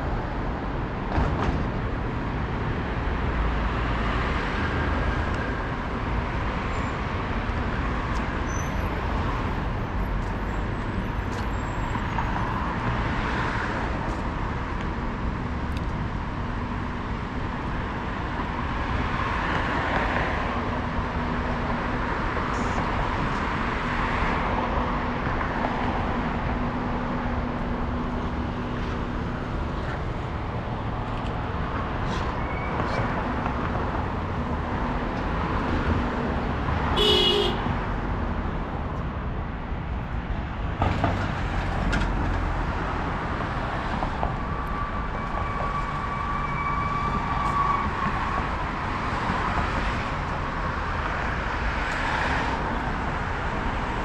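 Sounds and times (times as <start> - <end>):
passing cars: 0.0 - 54.0
car horn beep: 37.0 - 37.7.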